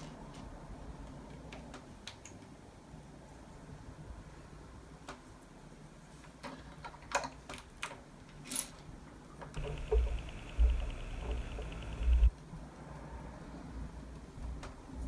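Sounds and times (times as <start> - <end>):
faint fast ticking: 9.6 - 12.3.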